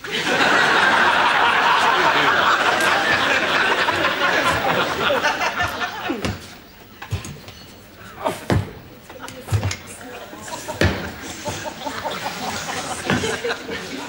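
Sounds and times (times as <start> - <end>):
audience laughing: 0.0 - 6.7, 8.9 - 14.0.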